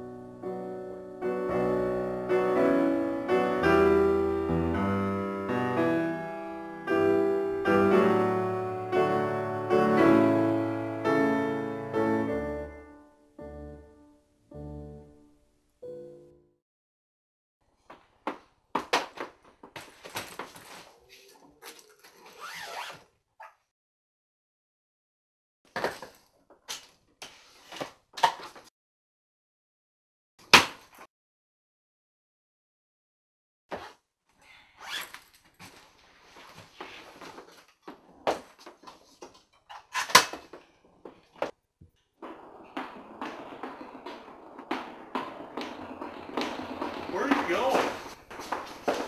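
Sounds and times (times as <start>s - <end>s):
household knocks and bangs: 42.2s - 49.0s.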